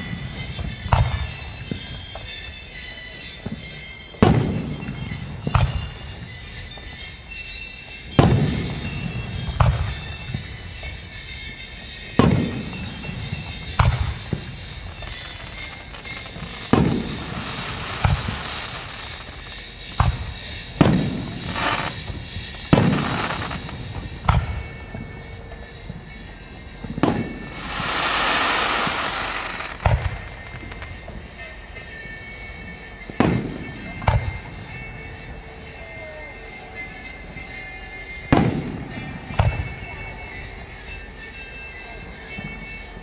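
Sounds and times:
firework shells booming: 12.1s - 26.2s, 26.8s - 31.2s.

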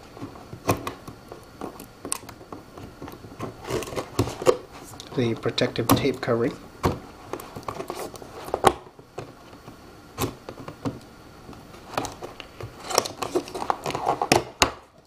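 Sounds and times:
cardboard scrapes and rustles: 2.8s - 5.3s, 7.1s - 8.7s, 11.7s - 14.4s.

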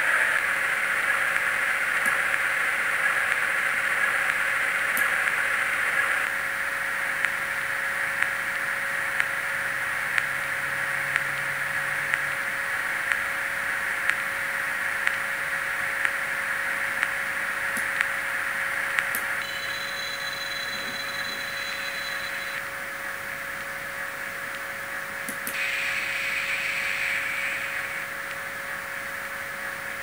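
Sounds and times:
faint hum: 0.0s - 30.0s
steady hiss from small speaker: 0.0s - 30.0s
sharp ticking: 19.0s - 22.6s.

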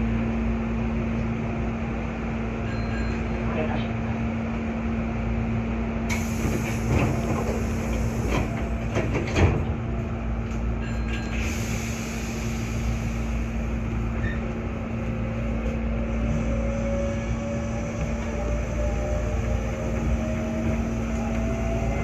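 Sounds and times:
electric train humming: 4.2s - 22.0s
train clunks and thump: 6.0s - 11.8s, 17.8s - 22.0s.

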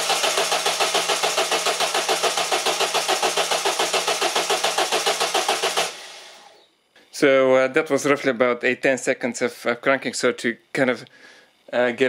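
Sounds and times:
diesel engine cranking: 0.0s - 6.5s.

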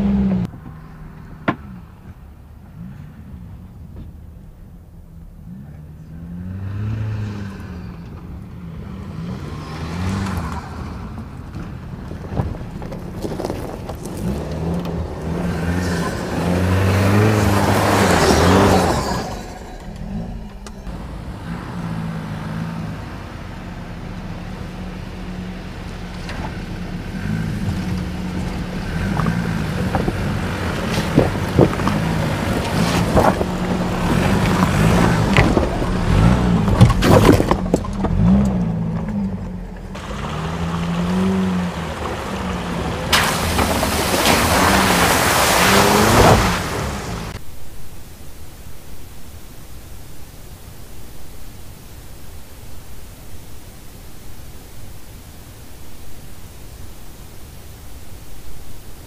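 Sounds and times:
pickup engine revving: 0.0s - 47.4s
rush of kicked-up dirt: 5.5s - 47.8s
tyres knocking over rock: 12.2s - 20.2s, 27.9s - 39.4s, 40.0s - 46.9s.

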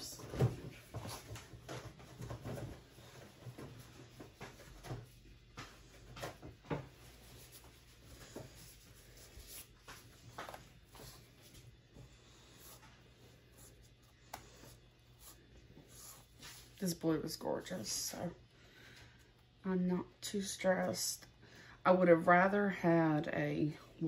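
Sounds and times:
gloves rustling: 0.7s - 17.0s.

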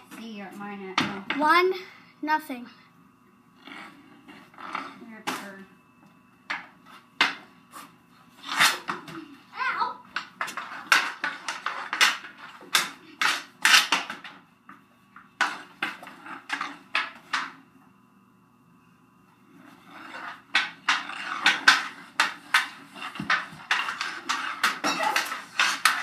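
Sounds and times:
hockey sticks clacking on concrete: 0.0s - 1.6s, 6.5s - 7.5s, 8.4s - 9.4s, 10.0s - 17.6s, 19.7s - 26.0s.

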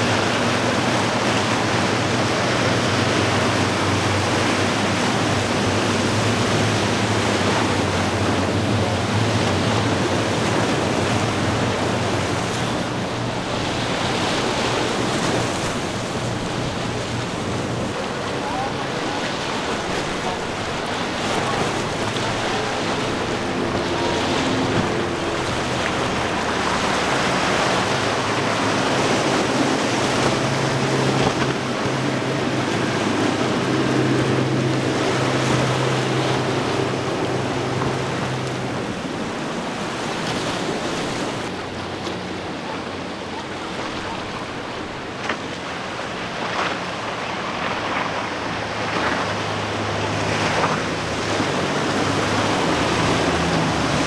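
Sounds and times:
outboard boat engine hum: 0.0s - 54.0s
rush of spray and wake: 0.0s - 54.0s.

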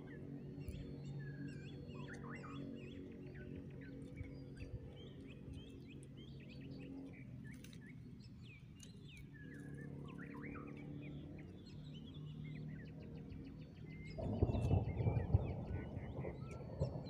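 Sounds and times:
small birds chirping: 0.0s - 17.0s
fluttering low rumble: 13.9s - 17.0s.

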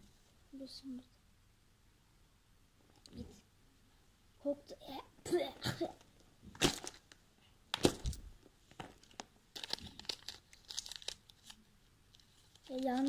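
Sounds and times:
light crackling and rustling: 5.9s - 13.0s.

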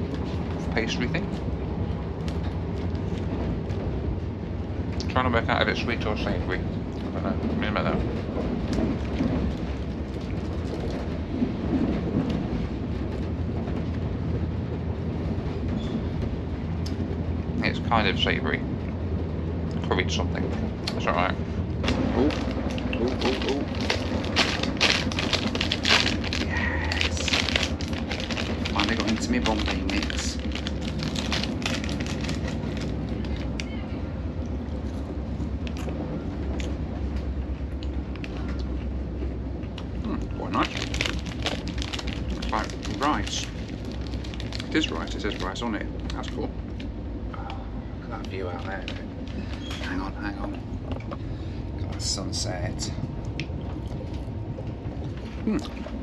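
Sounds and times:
train interior rumble: 0.0s - 56.0s
sharp clicks and rattles: 20.9s - 33.7s.

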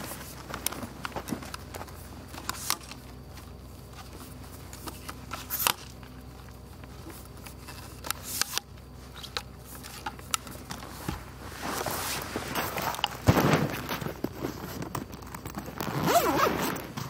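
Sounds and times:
faint low hum: 0.0s - 17.0s
tripod clicks and scrapes: 2.3s - 3.4s, 4.0s - 6.1s, 7.0s - 10.8s.

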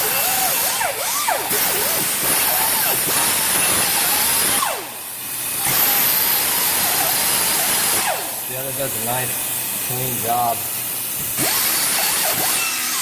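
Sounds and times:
pneumatic die grinder whining: 0.0s - 8.5s, 11.1s - 13.0s.

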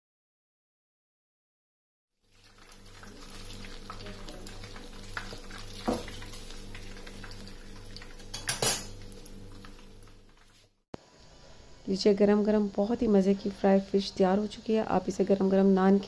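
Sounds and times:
clatter of tongs: 8.3s - 9.0s
metal tongs clinking on plate: 8.3s - 9.0s.

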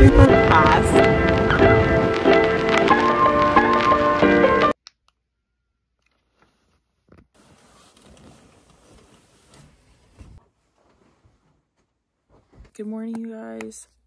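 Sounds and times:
bed sheets rustling: 6.2s - 12.9s.

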